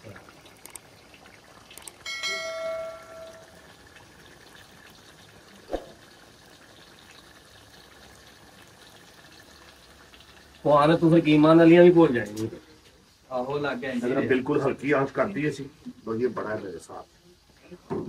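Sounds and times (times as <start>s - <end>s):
faint steady hiss: 0.0s - 18.0s
metal cookware ringing: 2.0s - 3.7s.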